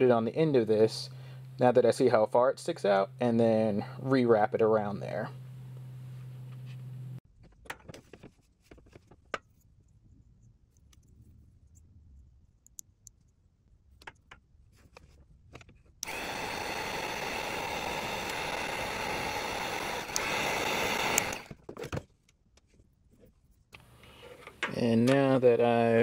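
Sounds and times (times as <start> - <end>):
heat gun blowing: 16.0 - 21.5.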